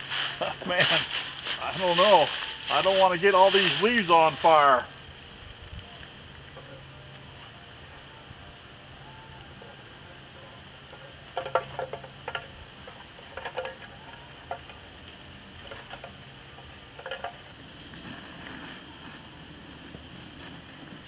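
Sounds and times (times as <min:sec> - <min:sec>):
metal chimney clinking and rattling: 0:10.9 - 0:14.9.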